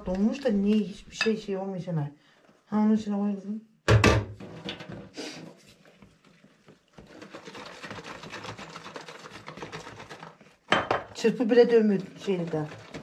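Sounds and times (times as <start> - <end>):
whisk scraping glass bowl: 5.6 - 13.0.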